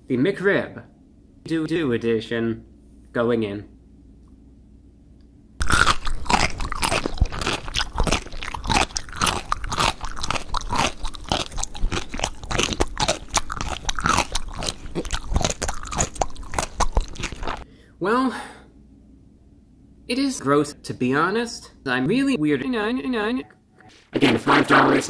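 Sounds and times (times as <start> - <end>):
crunching and chewing mouth sounds: 5.6 - 17.6.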